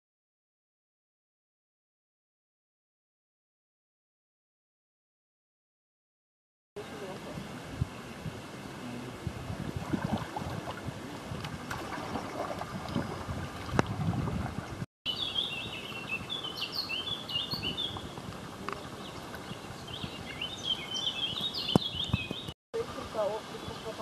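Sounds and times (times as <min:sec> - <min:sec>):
paddle splashes and knocks: 0:09.8 - 0:14.8
songbird chirping: 0:15.1 - 0:24.0.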